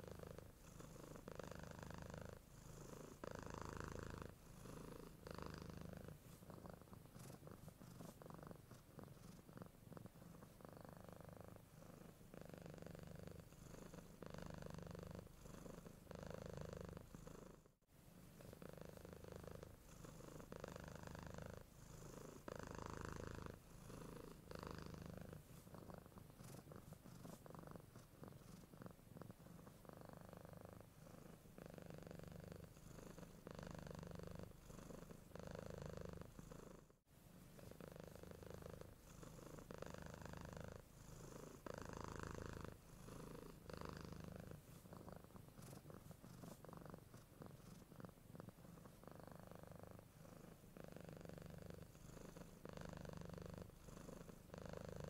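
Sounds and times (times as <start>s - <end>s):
cat purring: 0.0s - 55.0s.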